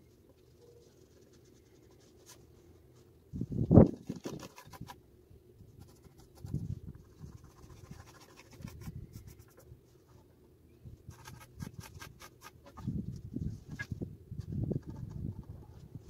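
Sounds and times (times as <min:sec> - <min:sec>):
pencil scratching on wood: 0:05.8 - 0:09.6, 0:11.1 - 0:12.8.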